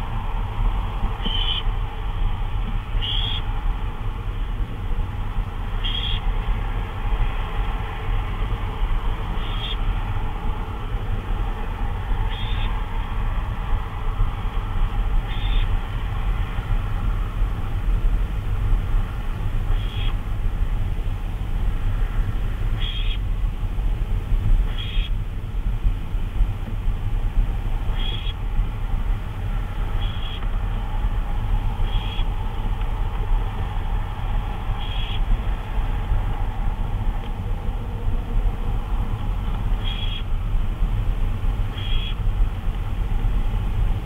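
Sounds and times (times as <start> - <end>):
low hum and hiss: 0.0 - 44.0
barn owl calls: 1.2 - 1.7, 3.0 - 3.5, 5.7 - 6.3, 9.3 - 9.9, 12.2 - 12.8, 15.2 - 15.8, 19.7 - 20.2, 22.7 - 23.3, 24.7 - 25.2, 27.9 - 28.4, 30.0 - 30.5, 31.7 - 32.4, 34.6 - 35.3, 39.7 - 40.3, 41.7 - 42.2.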